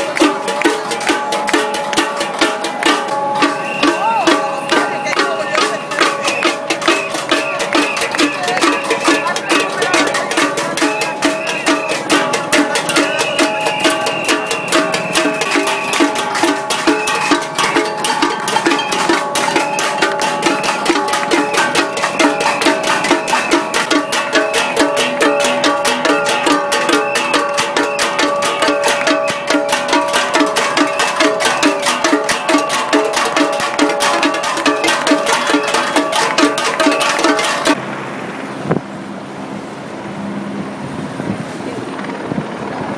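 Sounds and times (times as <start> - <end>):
crowd banging metal pots: 0.0 - 37.8.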